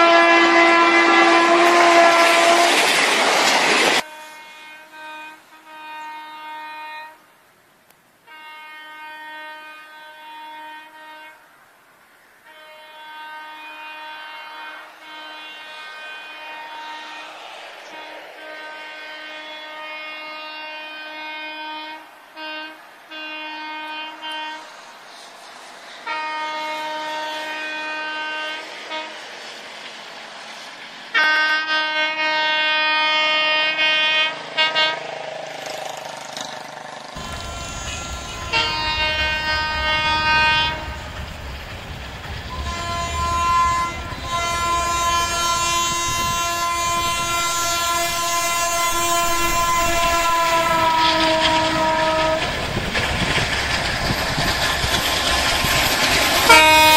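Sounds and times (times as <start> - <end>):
locomotive horn blasts: 0.0 - 3.0, 4.0 - 7.4, 8.2 - 11.5, 12.4 - 24.8, 26.0 - 29.2, 31.1 - 35.2, 37.2 - 41.6, 42.4 - 52.6, 56.5 - 56.9.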